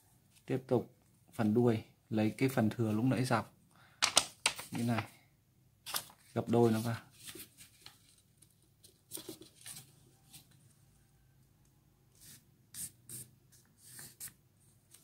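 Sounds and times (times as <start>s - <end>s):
paper rustling and crinkling: 5.9s - 10.6s.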